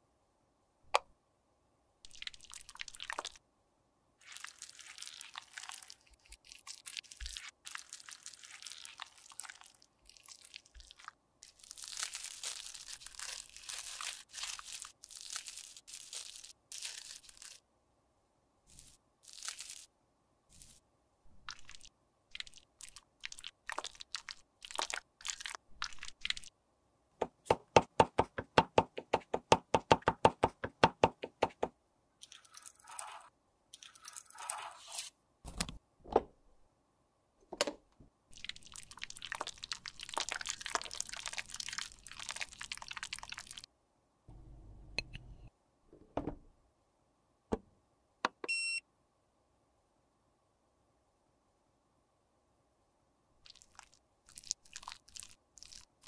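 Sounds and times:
plastic bag crinkling: 0:04.2 - 0:17.6, 0:18.7 - 0:19.9
plastic rustling: 0:11.5 - 0:17.6, 0:18.7 - 0:19.9
short beep: 0:48.5 - 0:48.8.

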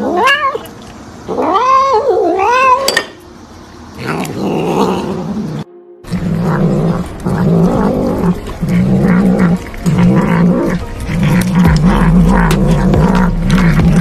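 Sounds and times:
cat meowing: 0:00.0 - 0:00.7, 0:01.3 - 0:02.9
cat growling while eating: 0:04.0 - 0:14.0.

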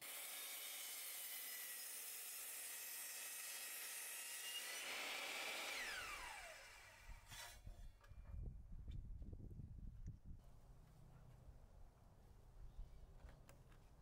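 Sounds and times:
saw blade winding down: 0:00.0 - 0:07.6
miter saw whining: 0:00.0 - 0:07.7.

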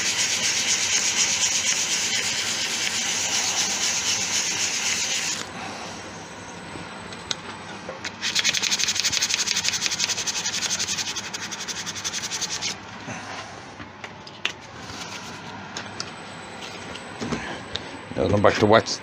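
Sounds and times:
sandpaper rasping on lathe: 0:00.0 - 0:05.5, 0:08.2 - 0:12.8.

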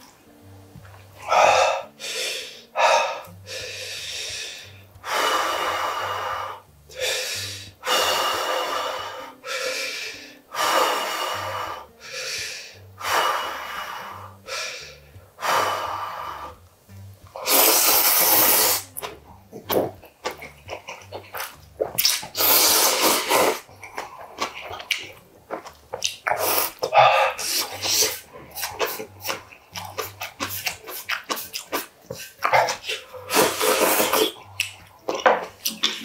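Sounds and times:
soft background music: 0:00.0 - 0:36.0
person slurping noodles: 0:17.4 - 0:19.7, 0:20.3 - 0:24.9, 0:26.2 - 0:34.8.

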